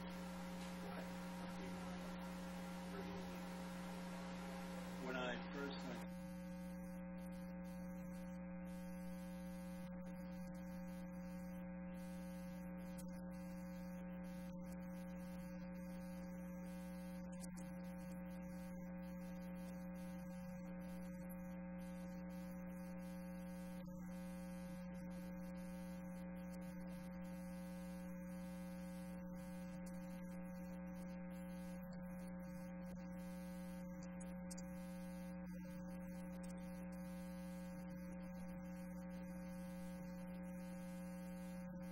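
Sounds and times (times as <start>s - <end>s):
electrical hum: 0.0s - 41.9s.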